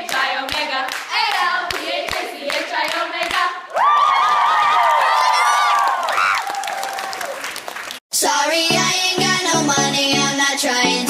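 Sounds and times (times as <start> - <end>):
women singing a chant: 0.0 - 3.8
people clapping: 0.0 - 8.0
group scream of excitement: 3.7 - 7.4.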